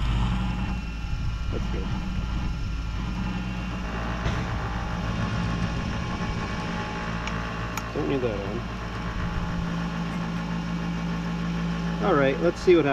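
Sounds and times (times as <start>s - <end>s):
bench grinder motor humming: 0.0s - 12.9s.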